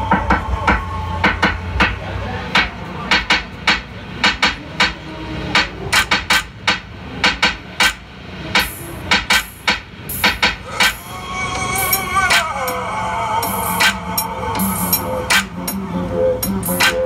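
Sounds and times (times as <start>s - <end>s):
sharp knocks or clicks: 2.6s - 5.0s, 5.6s - 8.0s, 8.6s - 11.0s.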